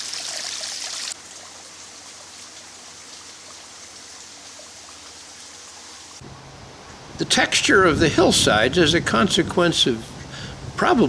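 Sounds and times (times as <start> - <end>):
water trickling over rocks: 0.0 - 6.2
faint steady hiss: 0.0 - 11.0.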